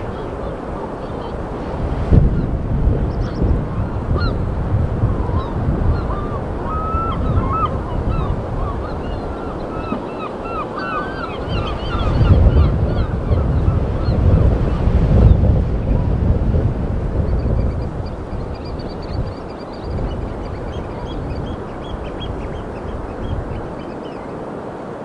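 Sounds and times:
flock of birds calling: 0:00.0 - 0:01.5, 0:05.1 - 0:14.8, 0:17.6 - 0:24.6
wind rumble on microphone: 0:00.0 - 0:25.0.

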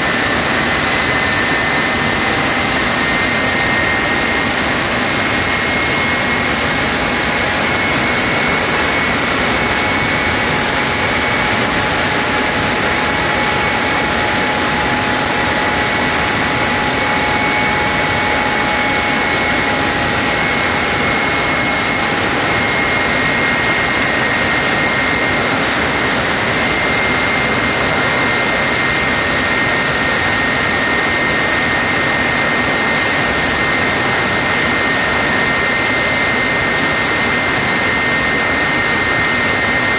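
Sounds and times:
jet engine roaring with whine: 0:00.0 - 0:39.9.

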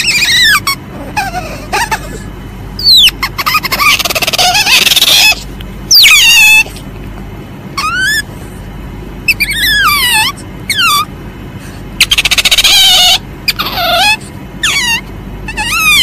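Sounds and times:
civet calling: 0:00.0 - 0:00.8, 0:02.8 - 0:06.7, 0:09.3 - 0:11.1, 0:12.0 - 0:16.0.

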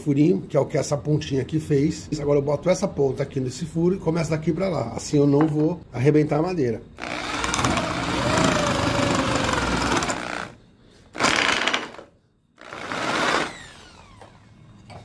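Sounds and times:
electric drill boring through wood: 0:07.0 - 0:10.6, 0:11.2 - 0:12.0, 0:12.6 - 0:14.4.

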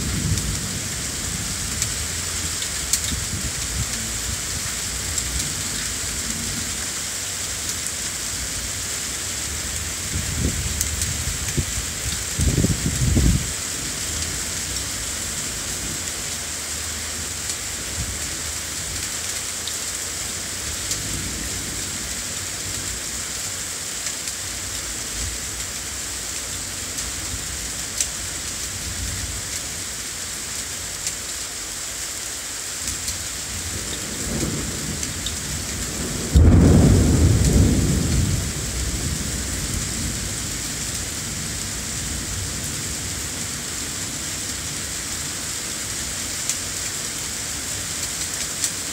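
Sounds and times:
low thunder rumbling: 0:00.0 - 0:06.7, 0:09.9 - 0:14.1, 0:33.5 - 0:43.1
steady rain: 0:00.0 - 0:48.9
loud thunderclap: 0:33.8 - 0:40.2.

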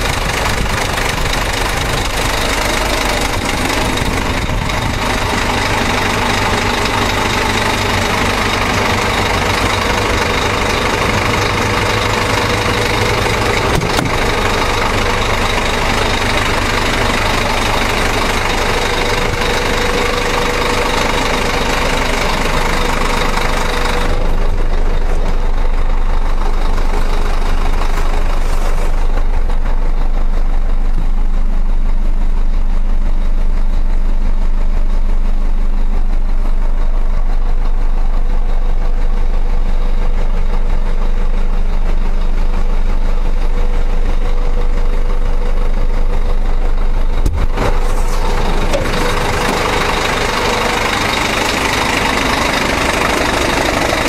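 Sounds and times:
engine and tyres rumbling: 0:00.0 - 0:54.0
road noise hiss: 0:26.4 - 0:31.4, 0:47.4 - 0:54.0.

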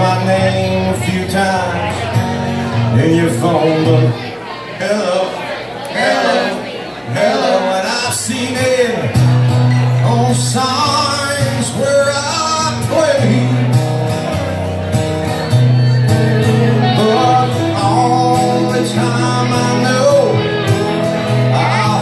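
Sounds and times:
strummed acoustic guitar: 0:00.0 - 0:04.3, 0:06.0 - 0:22.0
man singing: 0:00.0 - 0:05.4, 0:07.1 - 0:13.9, 0:16.0 - 0:22.0
electric guitar: 0:09.0 - 0:22.0.

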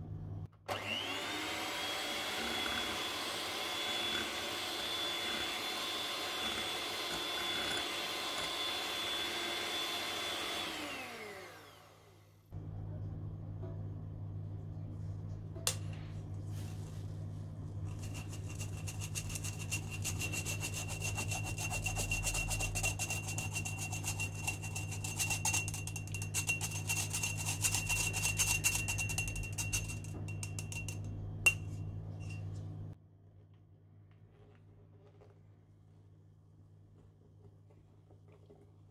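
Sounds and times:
electric mixer humming: 0:00.7 - 0:12.3
beaters scraping bowl: 0:01.3 - 0:10.9, 0:17.8 - 0:32.6.

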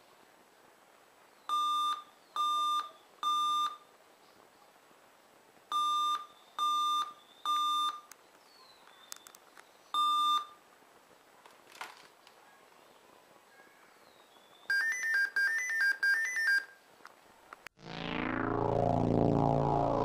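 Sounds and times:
short laptop beeps: 0:01.5 - 0:03.8, 0:05.7 - 0:08.1, 0:10.0 - 0:10.6, 0:14.7 - 0:16.8.

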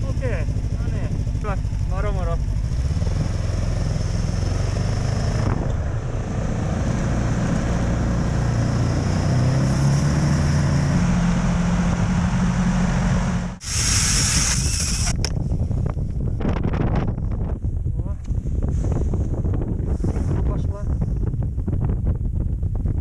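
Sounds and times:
snowmobile engine running: 0:00.0 - 0:15.2
rush of wind: 0:02.6 - 0:23.0.

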